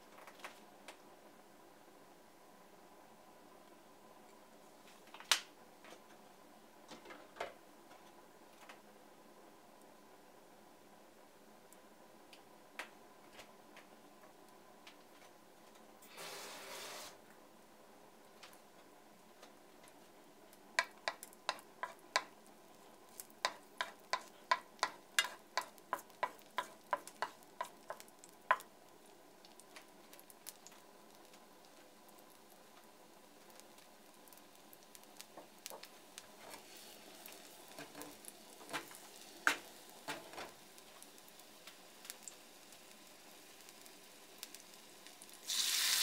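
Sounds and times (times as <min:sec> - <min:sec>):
garlic hissing in hot oil: 0:16.1 - 0:17.2, 0:33.4 - 0:46.0
spatula tapping a frying pan: 0:20.8 - 0:22.3, 0:23.4 - 0:28.7.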